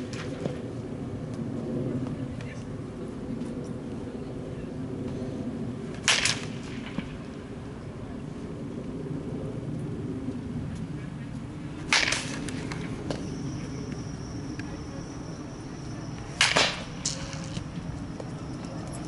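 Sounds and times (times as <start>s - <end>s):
steady low hum: 0.0s - 19.0s
baseball bat cracks: 6.0s - 7.1s, 11.9s - 13.3s, 16.3s - 17.7s.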